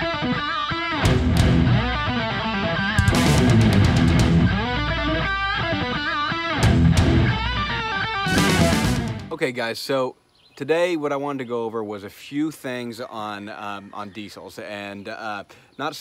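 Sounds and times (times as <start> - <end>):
electric guitar music: 0.0 - 9.3.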